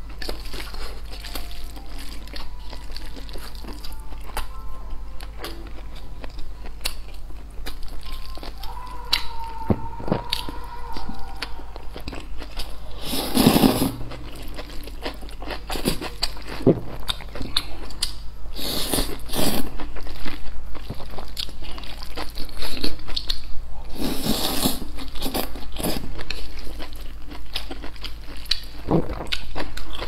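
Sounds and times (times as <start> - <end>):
wet chewing: 0.0 - 4.5, 5.2 - 18.2
noodle slurping: 12.9 - 14.0.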